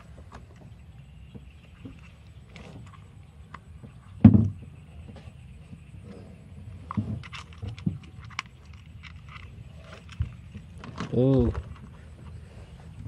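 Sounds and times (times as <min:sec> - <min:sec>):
plastic toy train cars clicking: 0:06.9 - 0:11.8.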